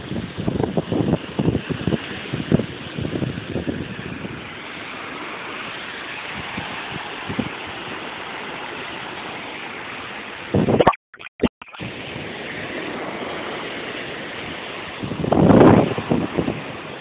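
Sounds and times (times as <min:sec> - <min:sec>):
wind buffeting microphone: 0:00.0 - 0:04.6, 0:06.3 - 0:08.0, 0:11.8 - 0:17.0
small waves washing onto sand: 0:00.0 - 0:10.8, 0:11.8 - 0:17.0.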